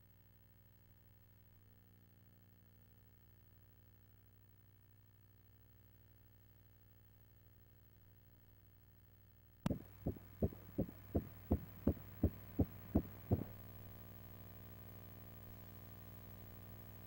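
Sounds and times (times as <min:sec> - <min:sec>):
doppler heartbeat whooshing pulses: 0:09.7 - 0:13.6.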